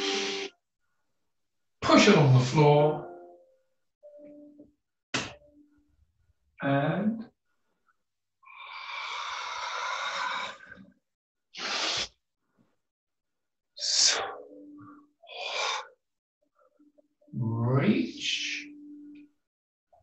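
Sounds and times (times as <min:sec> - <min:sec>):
person breathing hard: 0:08.5 - 0:10.8, 0:11.6 - 0:12.2, 0:15.3 - 0:16.0.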